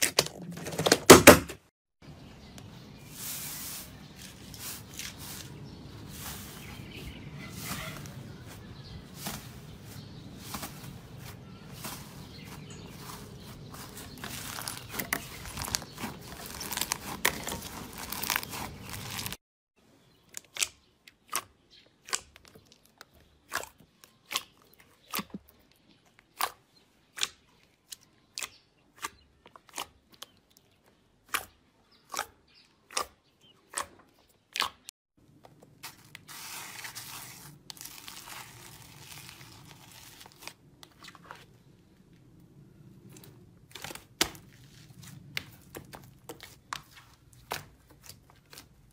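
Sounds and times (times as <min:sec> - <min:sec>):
soft crinkling: 0:02.6 - 0:19.4, 0:35.2 - 0:48.9
slime crunchy crackle: 0:11.7 - 0:19.4, 0:35.8 - 0:41.3.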